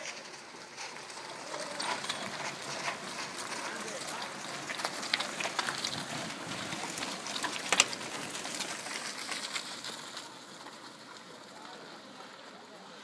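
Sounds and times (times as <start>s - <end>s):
bike clicks and rattles: 0.0s - 12.4s
bike tyres hissing on gravel: 0.0s - 13.0s.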